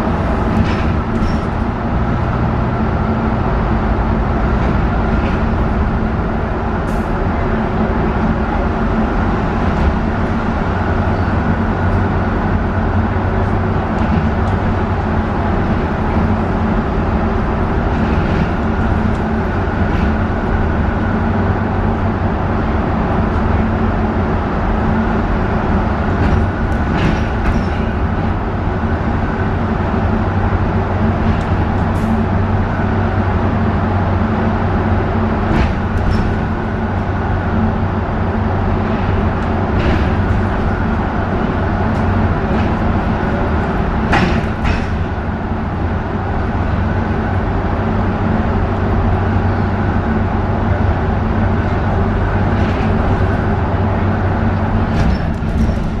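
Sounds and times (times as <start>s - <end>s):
bus engine hum: 0.0s - 56.0s
road noise: 0.0s - 56.0s
bus body knocks: 39.3s - 45.5s, 54.7s - 56.0s.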